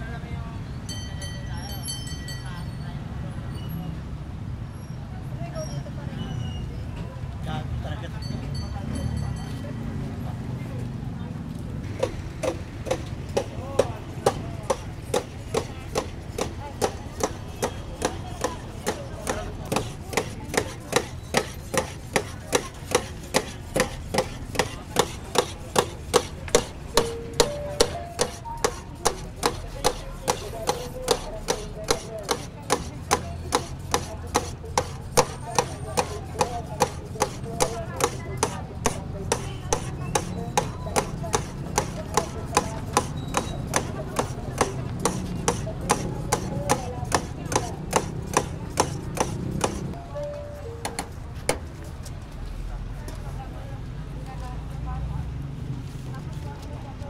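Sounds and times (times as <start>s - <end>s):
knife chopping meat on a tray: 11.9s - 50.0s.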